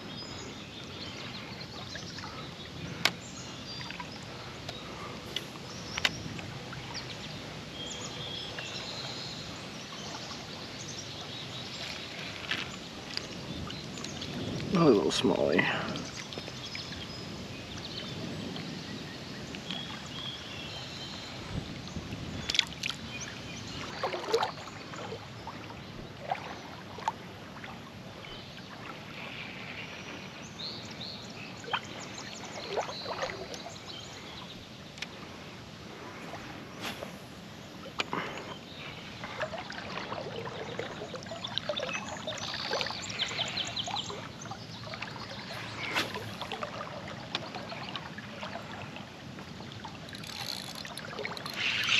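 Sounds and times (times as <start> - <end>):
river water splashing: 0.0 - 51.9.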